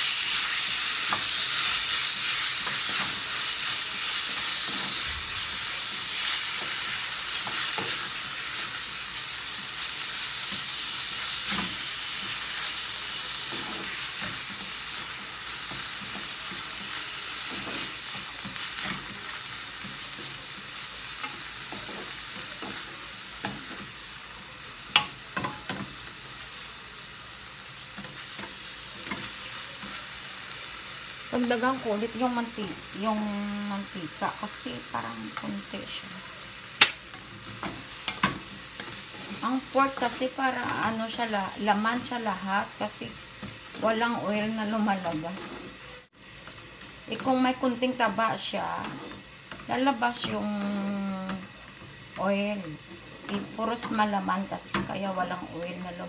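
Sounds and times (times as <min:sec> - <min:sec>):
meat sizzling in a frying pan: 0:00.0 - 0:56.0
wooden spatula scraping a pan: 0:36.8 - 0:42.1.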